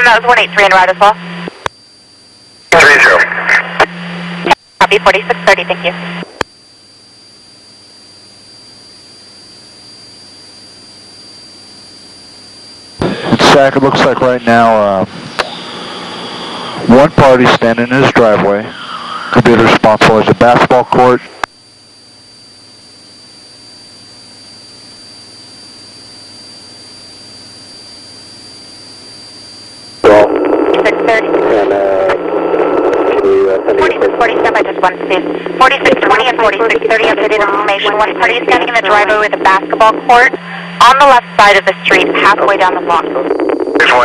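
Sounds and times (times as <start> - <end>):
radio static hiss: 0.0 - 1.8, 2.7 - 6.5, 12.7 - 21.6, 28.5 - 44.0
helicopter engine and rotor hum: 0.0 - 44.0
high turbine whine: 0.0 - 44.0.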